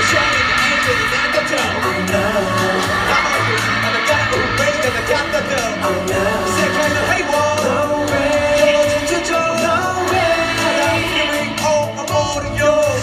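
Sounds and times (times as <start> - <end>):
man singing into microphone: 0.0 - 13.0
pop backing track with beat: 0.0 - 13.0.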